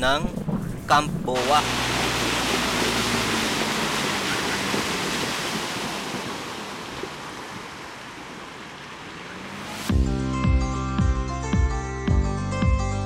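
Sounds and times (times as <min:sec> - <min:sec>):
water splashing and rushing: 0:00.0 - 0:09.9
low engine hum: 0:00.3 - 0:10.3.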